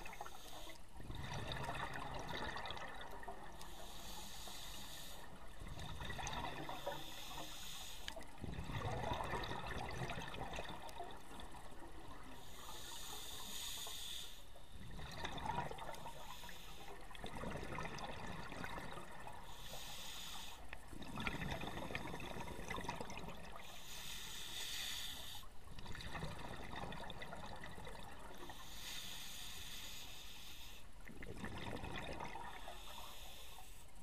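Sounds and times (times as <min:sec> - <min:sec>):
regulator inhale hiss: 0:00.0 - 0:01.0, 0:03.5 - 0:05.8, 0:06.5 - 0:08.4, 0:12.1 - 0:14.8, 0:15.9 - 0:17.2, 0:19.3 - 0:20.9, 0:23.6 - 0:25.6, 0:28.3 - 0:31.1, 0:32.4 - 0:34.0
exhaled air bubbling underwater: 0:00.0 - 0:34.0.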